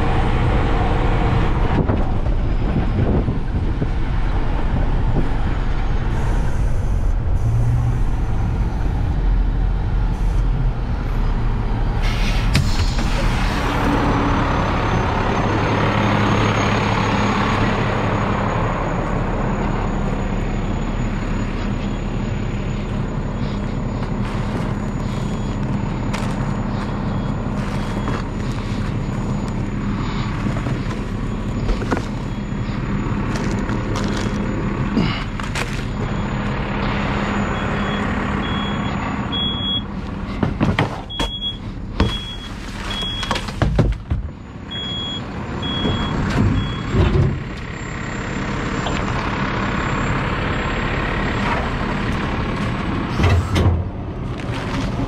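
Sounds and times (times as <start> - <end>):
garbage truck diesel engine idling: 13.9 - 53.2
knocks and rustling: 40.3 - 41.4, 42.0 - 44.4.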